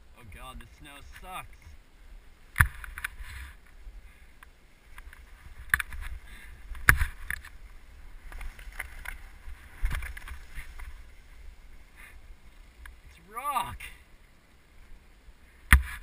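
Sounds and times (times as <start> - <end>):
skis scraping over crusty snow: 4.8 - 13.1.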